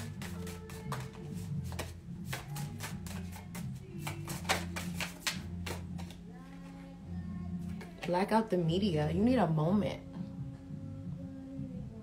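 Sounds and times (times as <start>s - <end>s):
cards being shuffled: 0.0s - 6.8s
background music: 0.0s - 12.0s.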